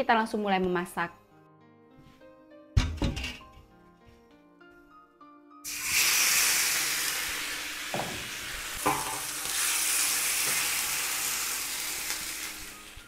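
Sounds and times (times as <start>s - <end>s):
water poured into hot wok: 5.6s - 12.6s
chicken sizzling in a wok: 5.6s - 13.0s.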